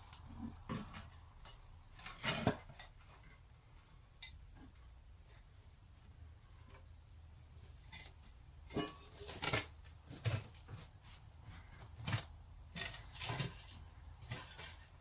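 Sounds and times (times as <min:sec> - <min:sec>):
metal canister knocks and scrapes: 0:08.7 - 0:10.9.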